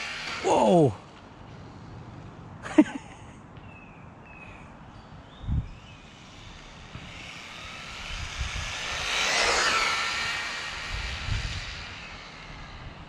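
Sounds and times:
rc truck motor whine: 0.0s - 0.7s, 5.8s - 13.0s.

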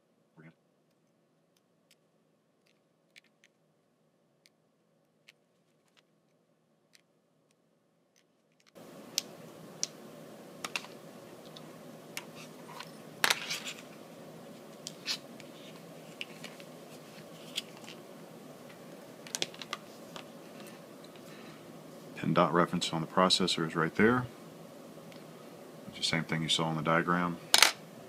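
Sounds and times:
steady hiss: 8.7s - 28.0s.

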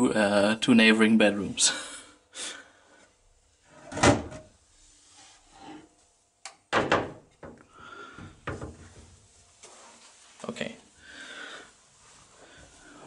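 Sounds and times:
door thumping shut: 6.7s - 7.6s.

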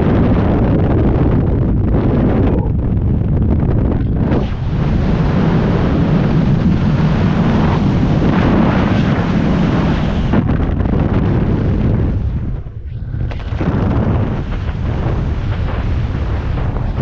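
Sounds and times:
freefall wind rushing: 0.0s - 17.0s.

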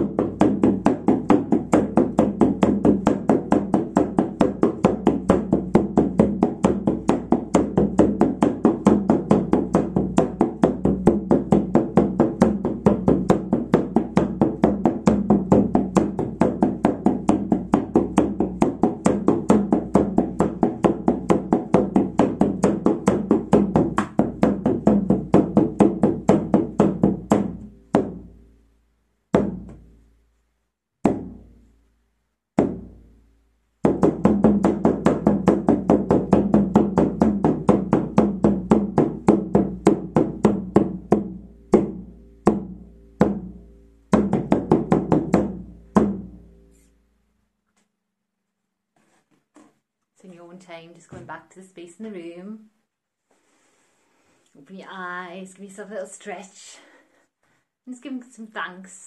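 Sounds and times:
frame drum beating: 0.0s - 28.4s, 29.3s - 29.9s, 32.6s - 33.0s, 33.8s - 46.7s.

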